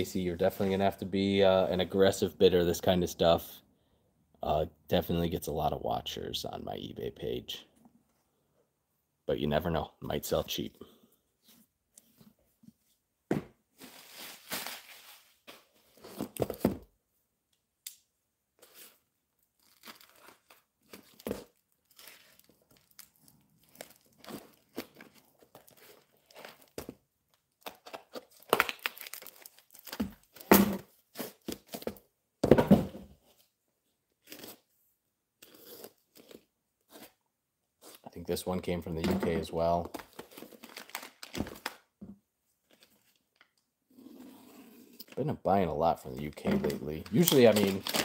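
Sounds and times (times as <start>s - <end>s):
wrapping paper crinkling: 13.8s - 15.4s, 40.2s - 41.8s, 46.7s - 48.0s
mailer tearing open: 46.7s - 48.0s.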